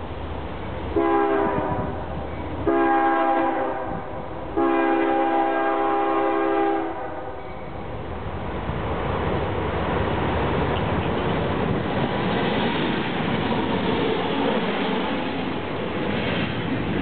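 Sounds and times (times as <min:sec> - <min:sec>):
diesel and rail rumble: 0:00.0 - 0:17.0
locomotive air horn blasts: 0:00.9 - 0:02.0, 0:02.6 - 0:07.4.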